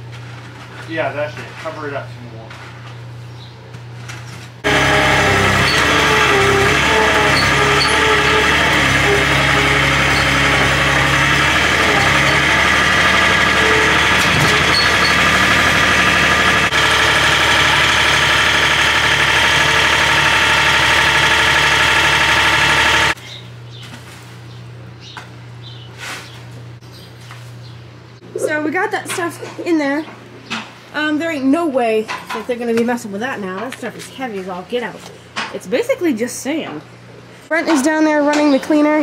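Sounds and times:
loader engine running: 4.6s - 23.7s.

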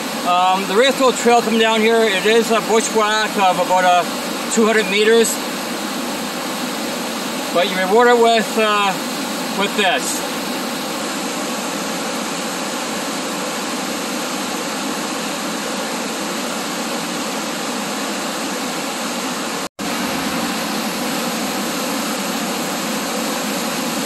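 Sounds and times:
waterfall rushing: 0.0s - 5.8s, 6.5s - 10.9s.

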